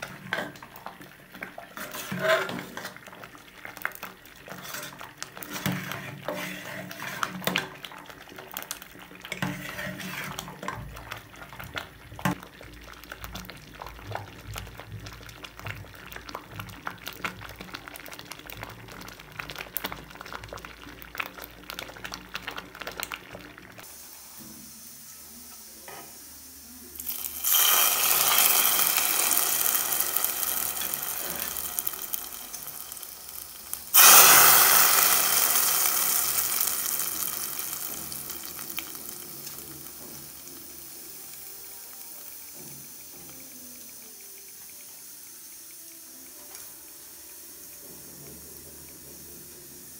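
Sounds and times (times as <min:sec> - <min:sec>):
spices sizzling in hot oil: 0:00.0 - 0:49.9
metal ladle scraping pot: 0:01.8 - 0:03.0, 0:04.5 - 0:07.6, 0:09.3 - 0:10.8.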